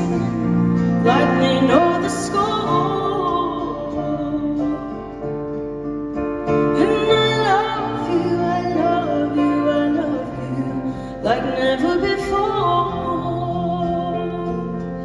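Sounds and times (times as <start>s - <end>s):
woman singing: 0.0s - 5.3s, 6.6s - 15.0s
piano chords: 0.0s - 15.0s.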